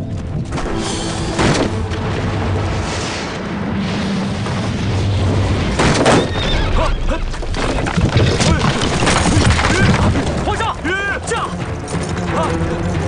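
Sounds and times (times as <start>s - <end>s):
boulder tumbling down rocky slope: 7.2s - 10.6s.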